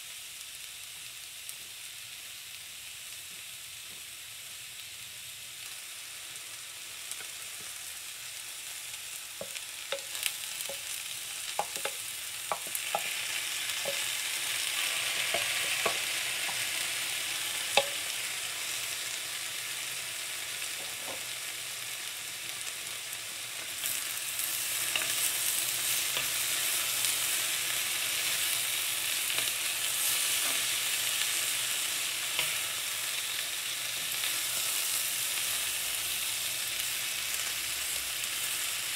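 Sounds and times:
vegetables sizzling in oil: 0:00.0 - 0:38.9.

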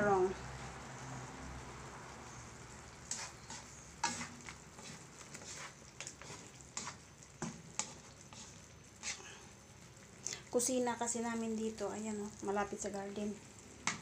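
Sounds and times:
faint sauce sizzle: 0:00.0 - 0:14.0
spatula scraping wok: 0:01.9 - 0:10.1.

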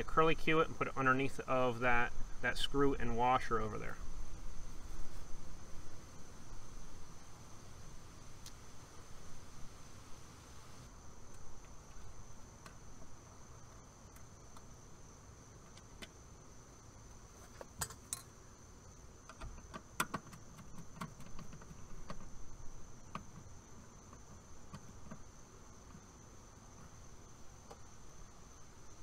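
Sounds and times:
high insect trill: 0:00.0 - 0:29.0
metallic clicks and taps of tools: 0:17.8 - 0:18.3.

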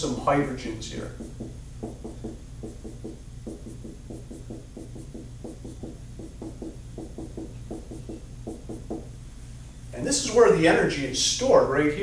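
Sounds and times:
steady low hum: 0:00.0 - 0:12.0
marker writing on whiteboard: 0:00.9 - 0:09.1.

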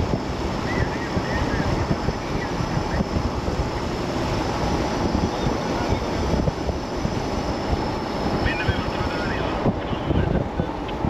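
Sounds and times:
vehicle and road noise: 0:00.0 - 0:11.0
wind buffeting microphone: 0:00.0 - 0:11.0.

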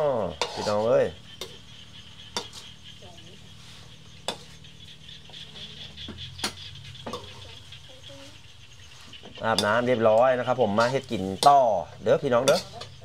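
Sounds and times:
ladle scraping in wok: 0:00.0 - 0:01.6.

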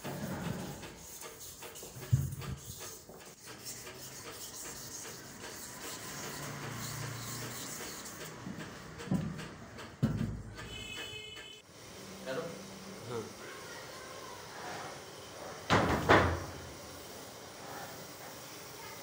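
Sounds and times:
metal castings scraping on concrete: 0:00.0 - 0:11.3.

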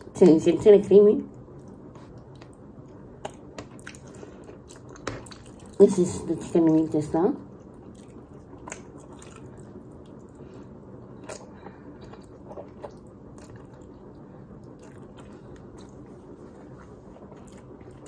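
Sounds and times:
noodles slurped and chewed: 0:07.7 - 0:18.0.

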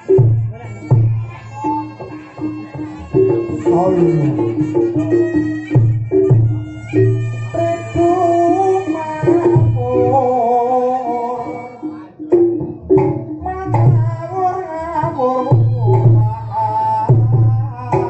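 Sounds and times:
wavering pitched melody: 0:00.0 - 0:18.0.

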